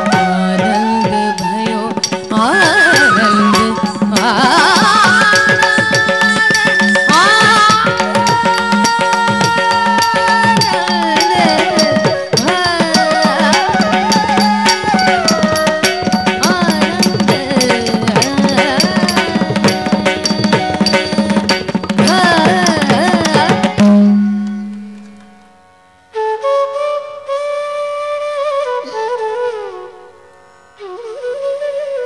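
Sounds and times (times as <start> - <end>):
flute melody: 0.0 - 17.5, 26.1 - 32.0
fast hand drum strokes: 0.0 - 24.1
bending melody line: 0.0 - 25.2.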